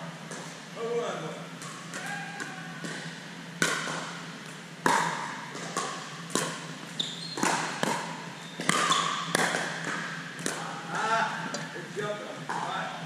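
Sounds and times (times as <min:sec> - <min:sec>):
ball bouncing on court: 0:01.6 - 0:11.7.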